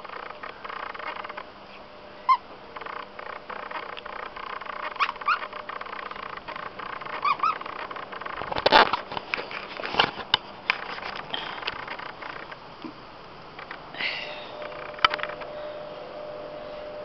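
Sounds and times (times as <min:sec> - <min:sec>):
scattered clicks: 0:00.0 - 0:01.5, 0:02.7 - 0:13.9, 0:14.6 - 0:15.5
dog chewing toy: 0:02.3 - 0:09.0
toy squeaker squeaking: 0:04.8 - 0:05.6, 0:06.9 - 0:07.8.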